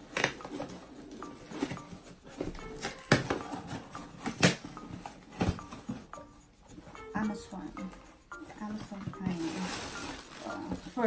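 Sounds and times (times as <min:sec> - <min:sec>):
package rustling and scraping: 0:08.3 - 0:11.0.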